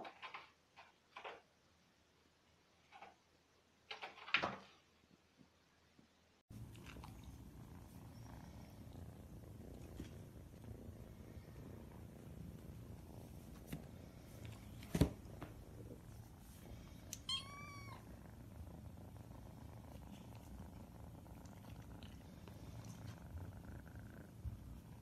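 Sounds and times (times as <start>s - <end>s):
kittens purring: 6.5s - 25.0s.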